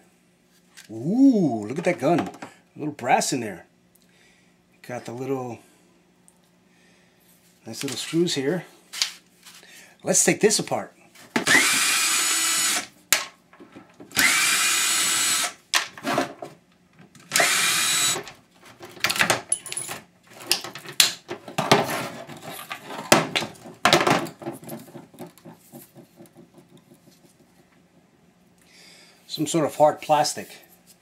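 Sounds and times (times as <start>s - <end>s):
power drill whining: 11.4s - 12.9s, 14.1s - 15.6s, 17.3s - 18.3s.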